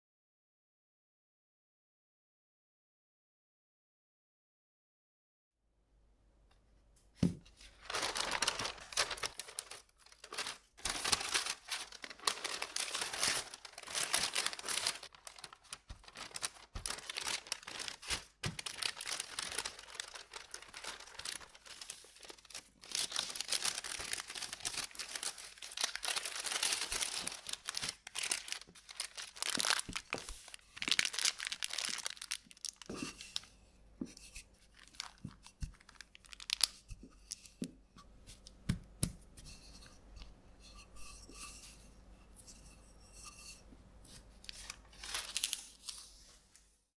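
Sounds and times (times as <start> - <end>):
parchment paper crinkling: 7.2 - 39.2, 44.1 - 46.8.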